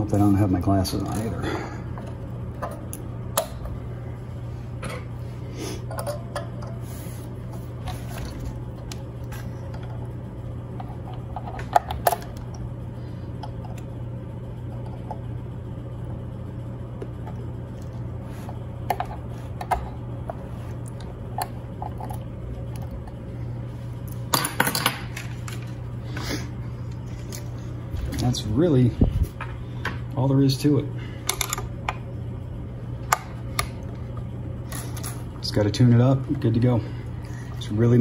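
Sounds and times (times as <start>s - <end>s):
steady low hum: 0.0s - 38.0s.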